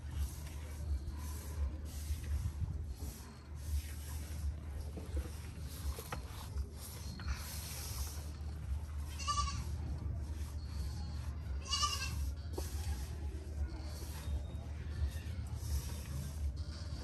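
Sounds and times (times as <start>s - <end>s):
steady low rumble: 0.0s - 11.6s.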